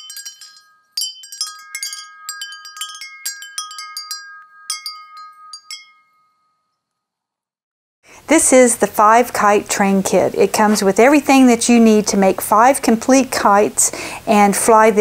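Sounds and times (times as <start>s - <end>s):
wind chimes tinkling: 0.0s - 7.1s.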